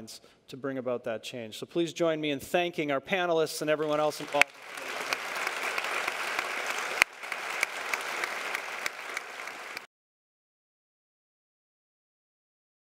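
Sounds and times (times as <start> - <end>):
audience applauding: 3.8 - 9.9.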